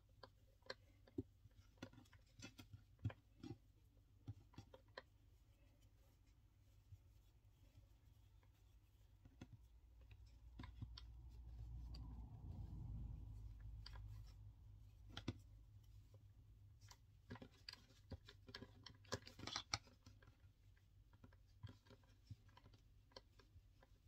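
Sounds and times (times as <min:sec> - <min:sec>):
scratchy rubbing of cord: 0:04.4 - 0:20.6.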